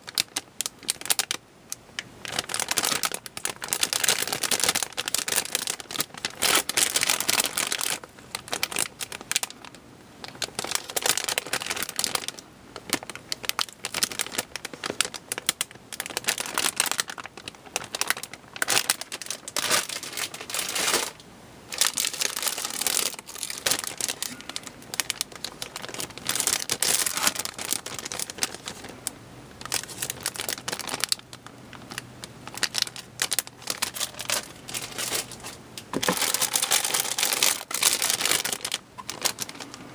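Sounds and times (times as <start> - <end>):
plastic bags crinkling: 0.0 - 1.4, 2.0 - 39.9.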